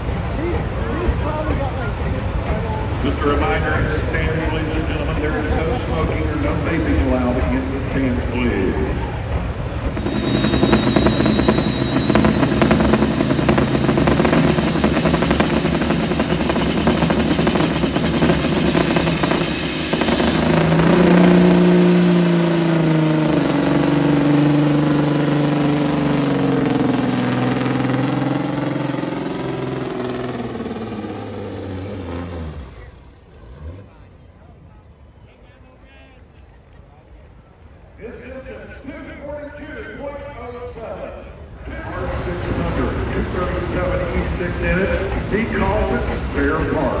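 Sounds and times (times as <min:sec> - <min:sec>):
diesel truck engine labouring: 0:00.0 - 0:47.0
high whine: 0:09.8 - 0:33.4.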